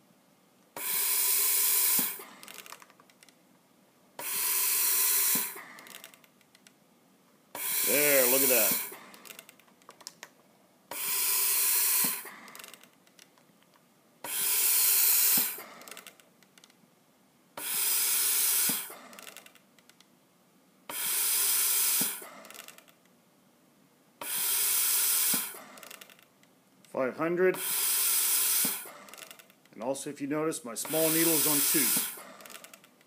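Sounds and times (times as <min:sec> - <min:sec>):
respirator gas hissing: 0:00.8 - 0:02.8, 0:04.2 - 0:06.2, 0:07.5 - 0:09.5, 0:10.9 - 0:12.8, 0:14.2 - 0:16.2, 0:17.6 - 0:19.5, 0:20.9 - 0:22.8, 0:24.2 - 0:26.1, 0:27.4 - 0:32.8.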